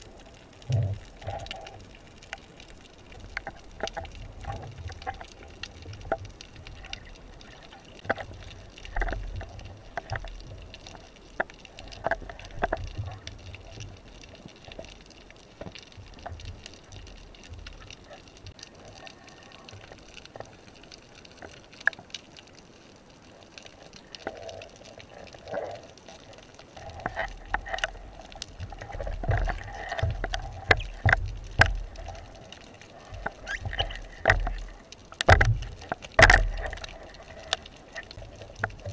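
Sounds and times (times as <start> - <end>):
low underwater rumble: 0.0 - 14.8
underwater water movement: 0.0 - 38.9
clicks and knocks of speargun: 35.2 - 37.6.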